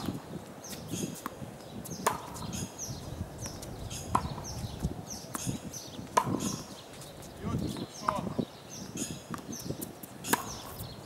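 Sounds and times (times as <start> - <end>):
birds chirping: 0.6 - 11.0
ball bouncing on hard court: 2.0 - 2.4, 3.5 - 4.4, 6.2 - 6.6
tennis racket hitting ball: 2.0 - 2.4, 4.1 - 4.4, 6.1 - 6.7, 9.1 - 10.7.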